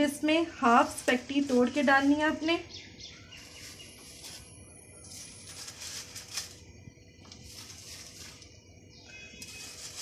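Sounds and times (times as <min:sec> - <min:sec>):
water boiling in a pot: 0:00.0 - 0:10.0.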